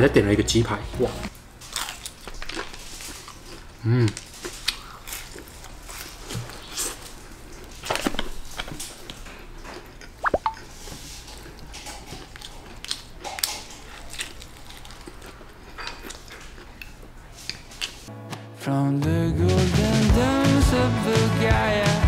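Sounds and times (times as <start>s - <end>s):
wet chewing and lip smacks: 4.4s - 18.0s
crispy food bites: 11.7s - 18.0s.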